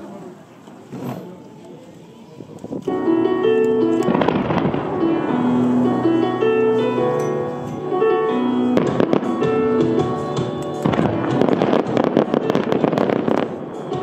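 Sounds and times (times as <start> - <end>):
music with long held notes: 2.9 - 14.0
fireworks bangs: 4.0 - 5.8, 8.8 - 14.0.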